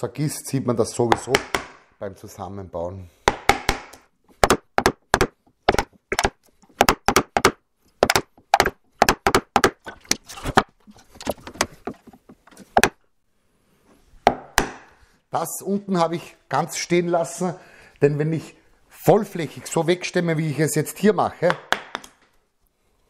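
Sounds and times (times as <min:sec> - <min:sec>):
wooden mallet striking chisel: 0:01.1 - 0:01.8, 0:03.3 - 0:13.0, 0:14.2 - 0:14.9.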